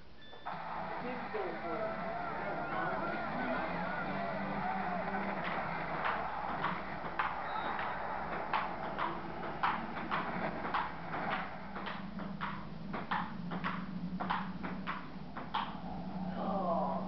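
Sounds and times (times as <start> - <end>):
steady low hum: 0.0 - 17.0
ping pong ball clicking: 6.0 - 15.8.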